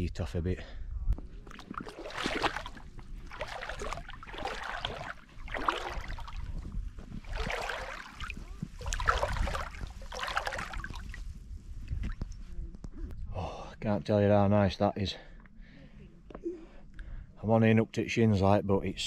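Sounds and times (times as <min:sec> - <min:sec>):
feet splashing in shallow water: 0:01.2 - 0:12.4.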